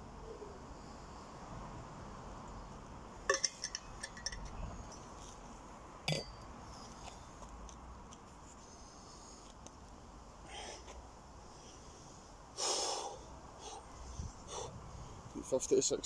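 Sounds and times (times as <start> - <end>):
bottle clinking: 3.3 - 4.5, 6.1 - 6.4.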